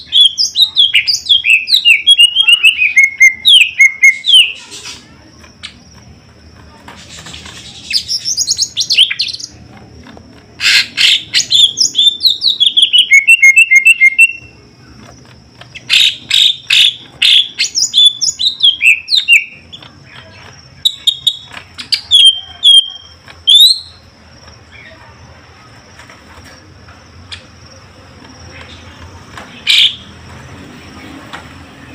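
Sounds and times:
bird singing chattering and whistles: 0:00.0 - 0:05.8, 0:07.0 - 0:09.6, 0:10.6 - 0:15.0, 0:15.7 - 0:25.2, 0:28.4 - 0:30.2.

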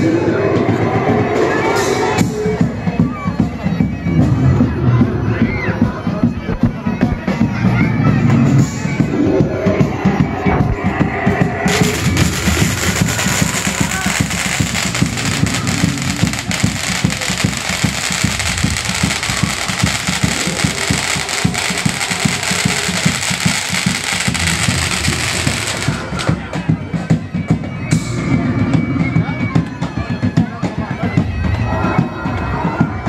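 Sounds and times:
parade drumming: 0:11.6 - 0:27.9
loud steady hiss: 0:11.7 - 0:26.3.

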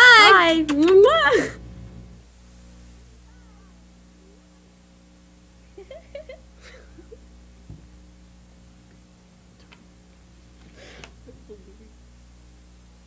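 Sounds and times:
electrical hum: 0:00.0 - 0:13.0
soft giggles: 0:05.7 - 0:07.3
soft thump: 0:07.7 - 0:07.9.

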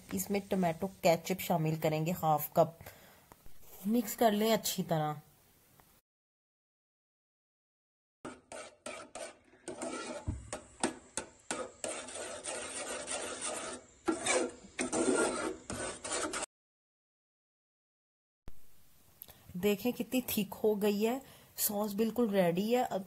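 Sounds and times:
metal spoon scraping saucepan: 0:08.3 - 0:16.5.

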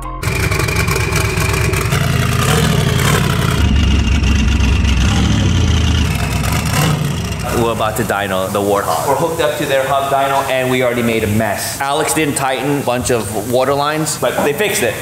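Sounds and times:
vehicle engine running loudly: 0:00.2 - 0:08.3.

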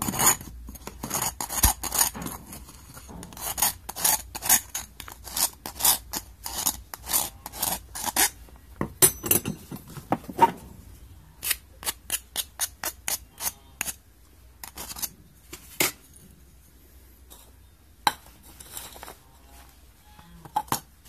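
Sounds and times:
file rasping on metal rim: 0:00.0 - 0:08.4, 0:11.4 - 0:14.0
metallic clinking: 0:09.0 - 0:10.0.

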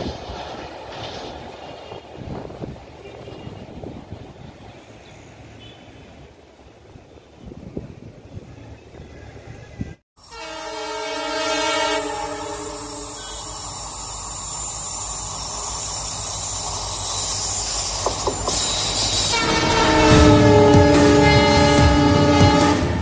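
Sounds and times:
train rumble and rail noise: 0:00.0 - 0:23.0
diesel locomotive horn: 0:10.2 - 0:13.5, 0:18.6 - 0:23.0.

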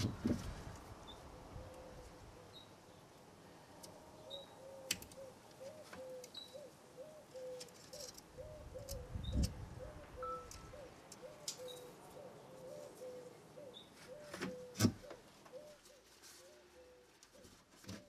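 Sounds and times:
faint dove cooing: 0:01.3 - 0:02.6, 0:04.3 - 0:18.0
light clicks of hands working: 0:04.8 - 0:06.4, 0:10.4 - 0:11.9.

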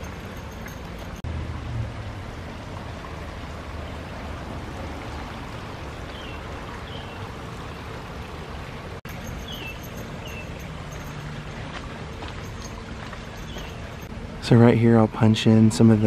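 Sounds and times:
stream rushing: 0:00.0 - 0:14.7
bird chirping: 0:06.1 - 0:07.3, 0:09.1 - 0:11.4, 0:12.4 - 0:14.1.

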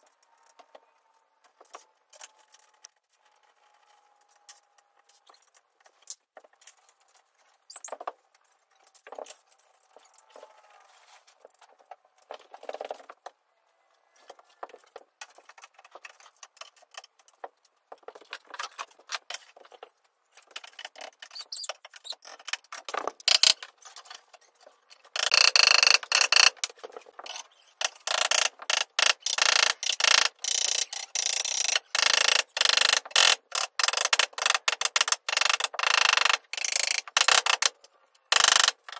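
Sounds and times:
ratchet tool clicking: 0:25.2 - 0:26.7, 0:27.8 - 0:38.9.

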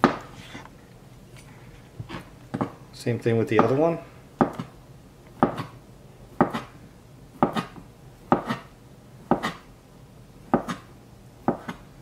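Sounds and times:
knife slicing potato: 0:07.4 - 0:08.7, 0:09.3 - 0:09.7.

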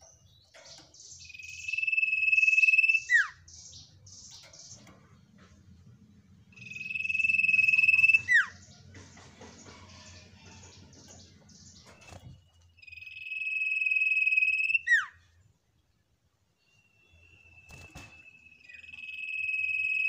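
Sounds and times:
bird trilling: 0:01.1 - 0:04.8, 0:06.5 - 0:08.7, 0:10.5 - 0:15.2, 0:17.3 - 0:20.0.

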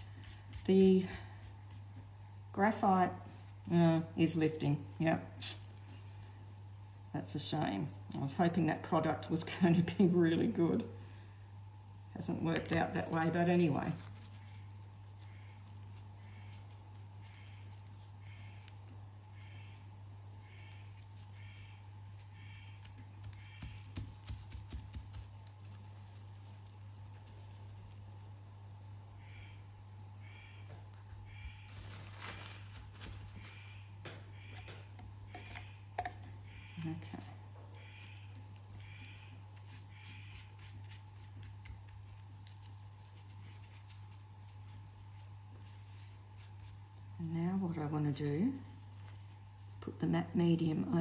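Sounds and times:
dry snake skin crinkling: 0:00.0 - 0:02.3, 0:12.2 - 0:29.5, 0:30.9 - 0:47.7, 0:48.5 - 0:49.8
steady low hum: 0:00.0 - 0:51.0.

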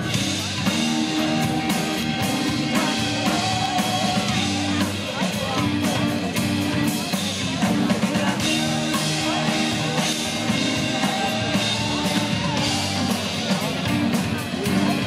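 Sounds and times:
bass guitar: 0:00.0 - 0:15.0
drum kit: 0:00.0 - 0:15.0
electric guitar: 0:00.0 - 0:15.0
person singing into a microphone: 0:00.4 - 0:06.1.

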